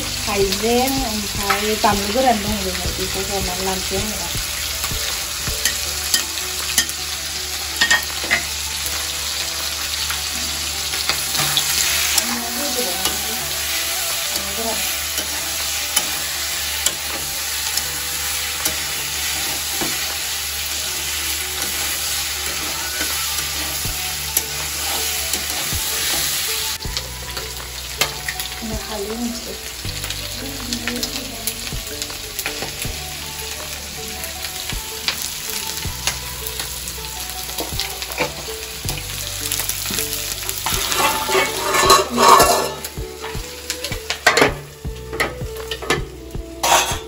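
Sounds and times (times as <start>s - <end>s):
fish sizzling in oil: 0.0s - 47.0s
metal spatula scraping pan: 40.6s - 43.0s, 46.6s - 47.0s.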